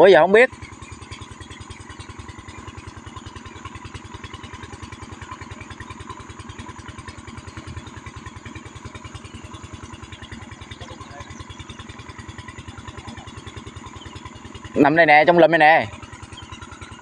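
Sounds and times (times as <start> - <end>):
small engine idling: 0.0 - 17.0.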